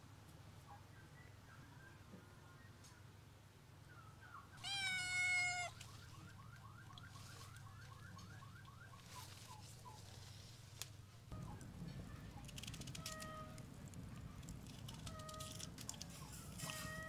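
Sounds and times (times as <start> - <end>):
kitten meowing: 4.6 - 5.8.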